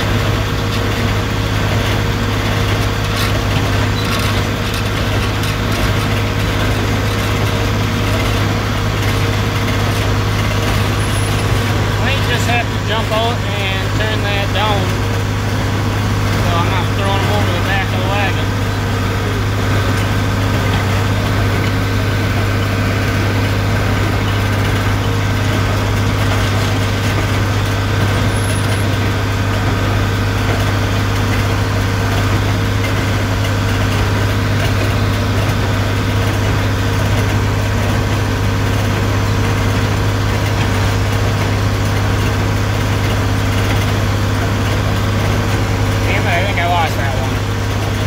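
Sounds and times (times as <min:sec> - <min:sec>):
baler machinery running: 0:00.0 - 0:48.0
tractor engine drone: 0:00.0 - 0:48.0.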